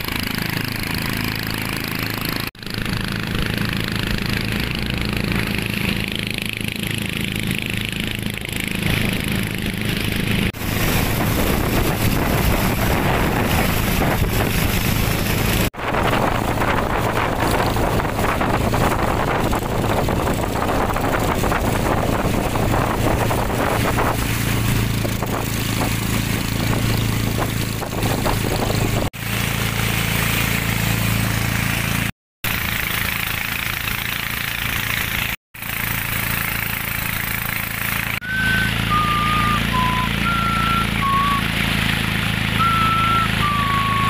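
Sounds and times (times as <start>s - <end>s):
engine humming: 0.0s - 44.0s
short high notes: 38.2s - 41.6s, 42.6s - 44.0s.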